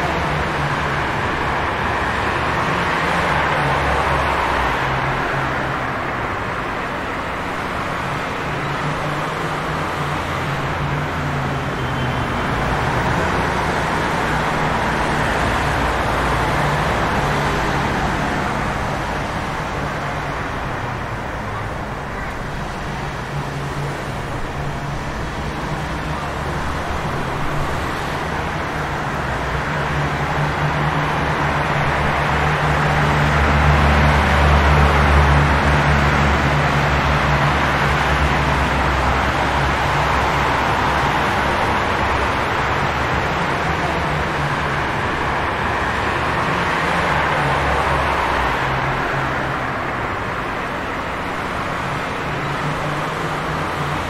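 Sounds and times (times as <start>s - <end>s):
passing vehicles road noise: 0.0s - 54.0s.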